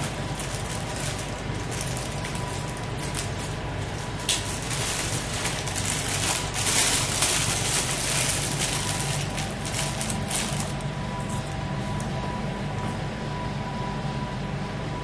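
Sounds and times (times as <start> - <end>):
plastic bag crinkling: 0.0 - 11.4
steady low hum: 0.0 - 15.0.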